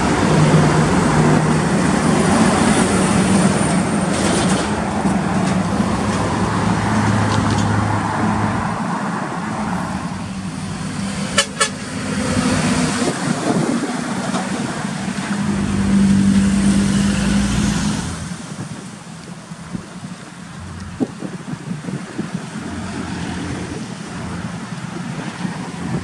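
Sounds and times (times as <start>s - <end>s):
trucks driving past: 0.0s - 26.0s
truck horn blast: 11.2s - 12.2s.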